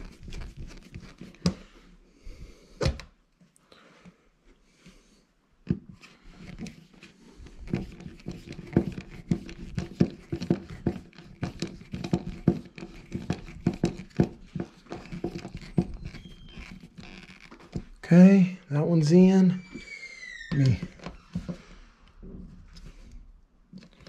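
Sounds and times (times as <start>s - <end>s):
screwdriver turning screw creaking: 11.9s - 18.0s, 19.5s - 21.7s.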